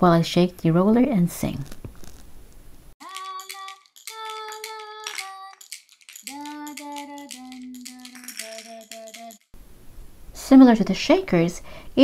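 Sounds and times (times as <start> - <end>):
woman singing: 3.0 - 5.6, 6.2 - 9.4
baby toy shakers rattling: 3.0 - 9.5.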